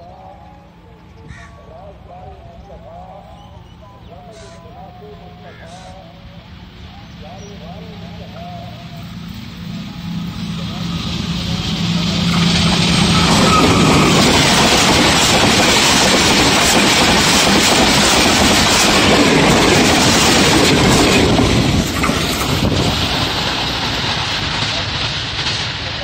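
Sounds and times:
train passing at speed: 0.0s - 26.0s
train wheels running on rails: 1.9s - 26.0s.

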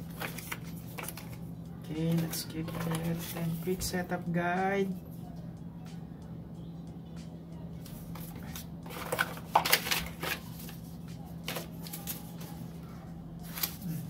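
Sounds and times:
paper rustling: 0.0s - 1.4s, 2.1s - 3.8s, 7.9s - 12.8s, 13.4s - 14.0s
low steady hum: 0.0s - 14.0s.

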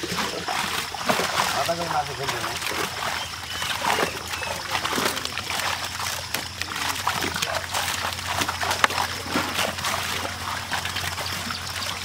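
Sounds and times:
fish flapping and splashing: 0.0s - 12.0s.

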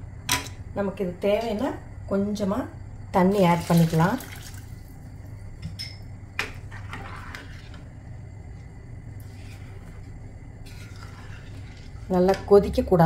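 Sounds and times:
steady low hum: 0.0s - 13.0s
spatula scraping pan: 6.7s - 7.9s, 9.2s - 12.8s.

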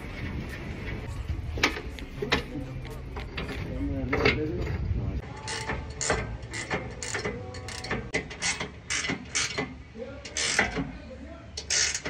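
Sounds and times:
ratchet wrench clicking: 5.4s - 10.9s, 11.6s - 12.0s.

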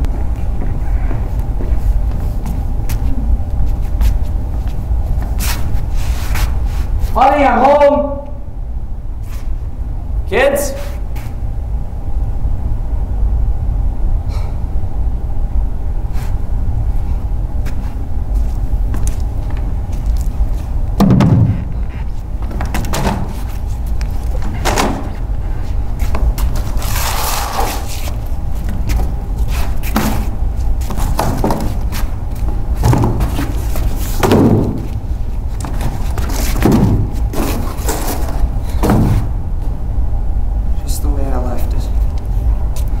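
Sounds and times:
steady low hum: 0.0s - 43.0s
cardboard boxes thudding: 21.0s - 21.8s, 29.9s - 32.0s, 32.8s - 35.0s, 35.7s - 39.3s.

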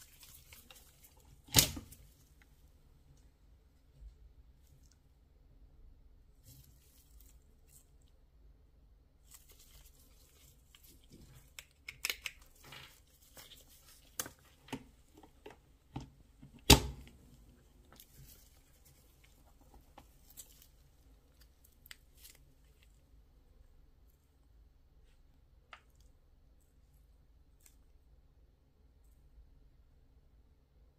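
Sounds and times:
handling rustling: 0.0s - 5.1s, 9.2s - 23.3s.

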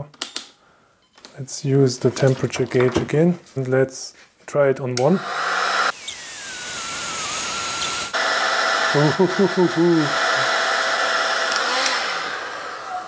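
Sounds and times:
heat gun blowing hot air: 5.2s - 13.0s.

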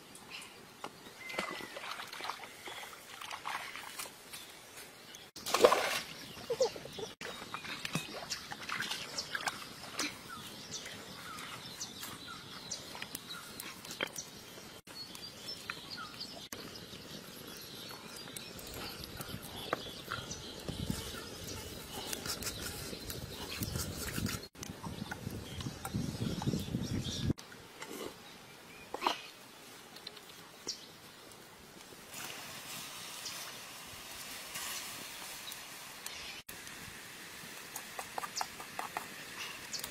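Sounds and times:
water hissing in hot wok: 32.1s - 39.8s.

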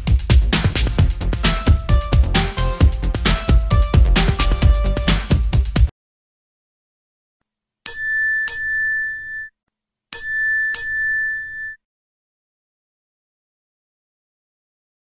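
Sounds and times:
electronic dance music: 0.0s - 5.9s
bright bell-like chime dings: 7.9s - 9.5s, 10.2s - 11.8s.

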